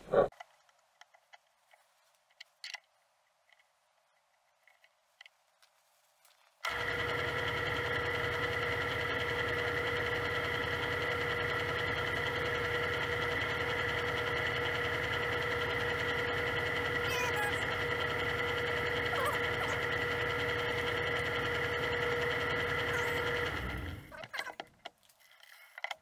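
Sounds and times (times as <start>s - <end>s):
metal lathe motor whining: 6.7s - 24.4s.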